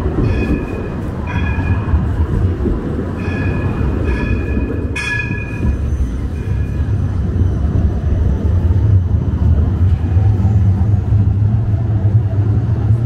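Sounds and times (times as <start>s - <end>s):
trams rumbling on rails: 0.0s - 13.0s
high ringing rail squeals: 0.2s - 2.2s, 3.2s - 8.1s.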